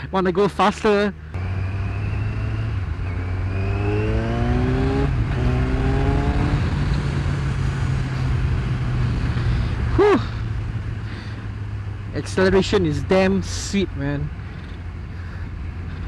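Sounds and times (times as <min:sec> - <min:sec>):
motorcycle engine accelerating: 0:01.3 - 0:12.8.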